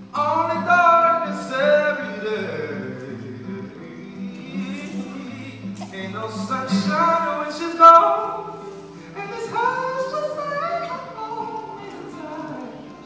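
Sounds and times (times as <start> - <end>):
acoustic guitar: 0.0 - 13.0
man singing: 0.0 - 13.0.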